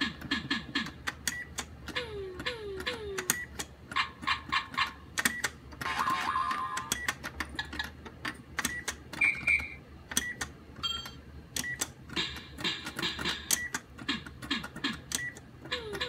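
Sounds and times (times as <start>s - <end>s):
plastic toy buttons clicking: 0.1s - 16.0s
short high electronic beeps: 9.2s - 9.8s.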